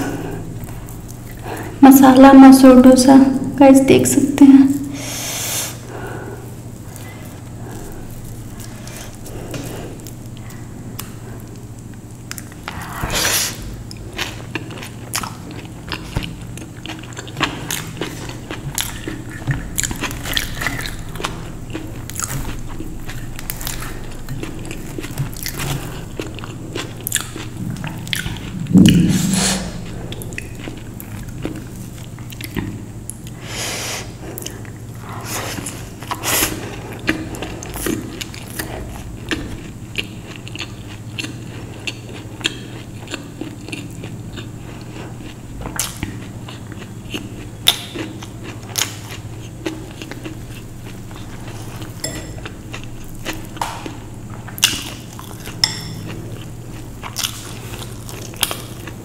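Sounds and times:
wet chewing and biting: 6.9 - 28.8, 36.8 - 59.0
deep thud: 28.6 - 30.0.

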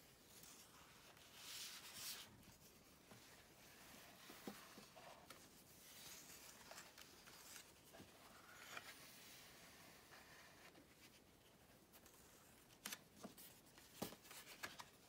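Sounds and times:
paper rustling and sliding: 0.4 - 11.2.

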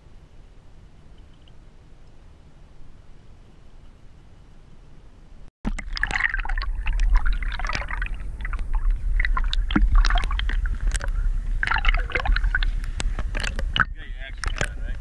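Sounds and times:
steady low rumble: 0.0 - 15.0
crackles and splashes: 5.6 - 15.0
seawater sloshing and gurgling: 5.6 - 15.0.

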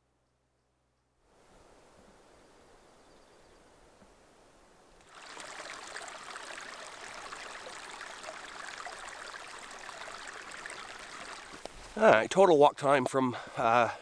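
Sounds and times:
creek running over rocks: 5.0 - 13.8.

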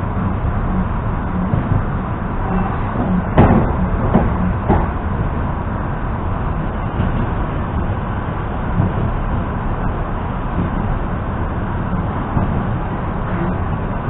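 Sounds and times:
train running noise: 0.0 - 14.0
sharp knocks: 3.0 - 5.0.

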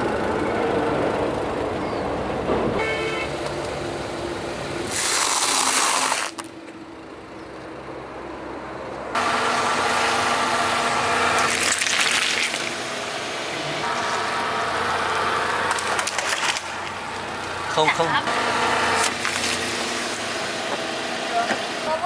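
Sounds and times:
car engine running: 0.0 - 4.9, 6.3 - 22.0.

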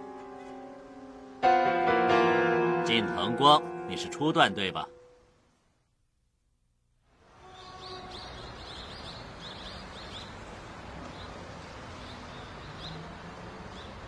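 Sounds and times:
steady background hiss: 0.0 - 14.0
small birds chirping: 7.4 - 14.0.

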